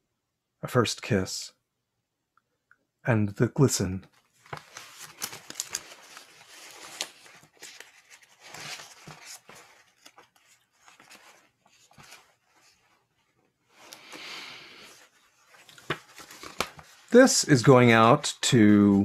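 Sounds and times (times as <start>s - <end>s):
paper pages rustling: 4.2s - 18.1s.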